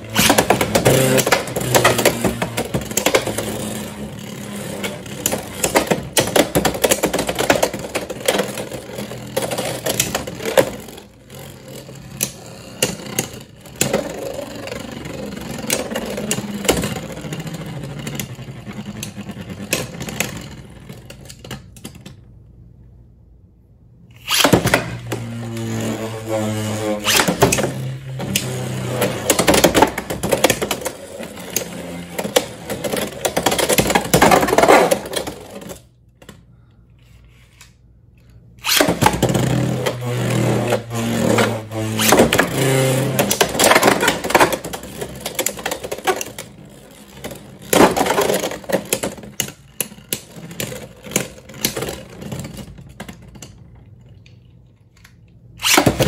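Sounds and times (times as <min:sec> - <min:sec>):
spinning tops whirring and clattering: 0:00.0 - 0:21.5, 0:24.1 - 0:35.9.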